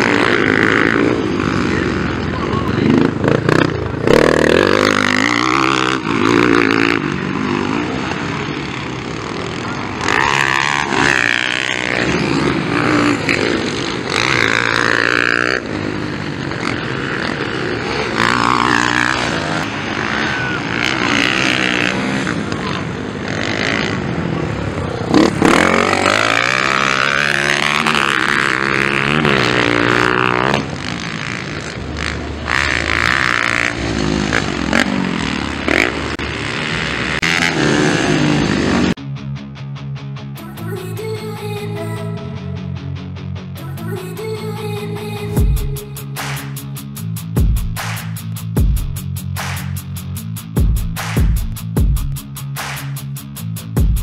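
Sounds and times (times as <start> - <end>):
motocross bikes revving past: 0.0 - 39.0.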